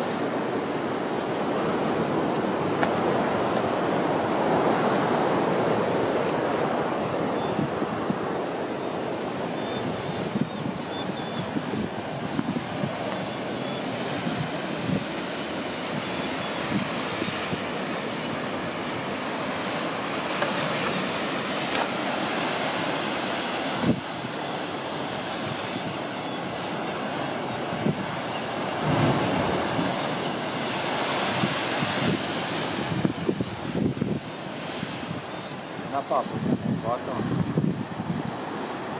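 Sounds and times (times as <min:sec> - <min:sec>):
wind buffeting microphone: 0:00.0 - 0:38.9
surf breaking on rocks: 0:27.7 - 0:35.2.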